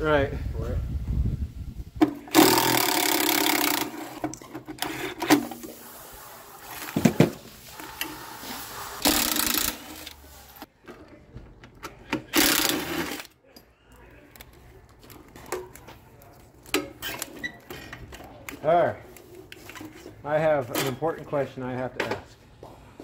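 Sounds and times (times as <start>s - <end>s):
cordless power tool whirring: 2.1s - 5.5s, 9.0s - 10.2s.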